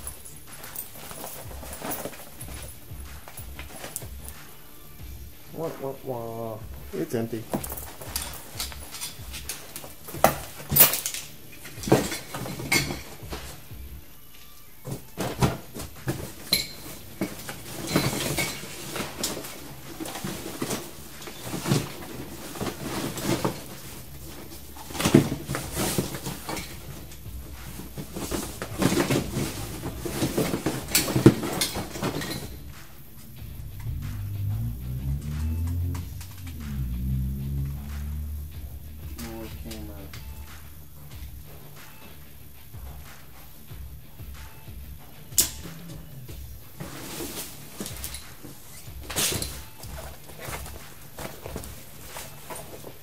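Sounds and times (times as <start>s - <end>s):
rummaging in cardboard box: 0.0s - 4.4s, 7.3s - 13.7s, 14.8s - 32.7s, 45.8s - 53.0s
rustling of items being handled: 0.0s - 53.0s.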